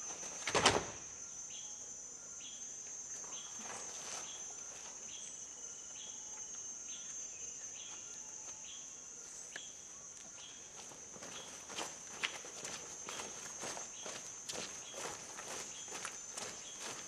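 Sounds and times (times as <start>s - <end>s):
short insect chirp: 0.0s - 17.0s
high-pitched insect trilling: 1.0s - 17.0s
feet scuffing on ground: 10.2s - 17.0s.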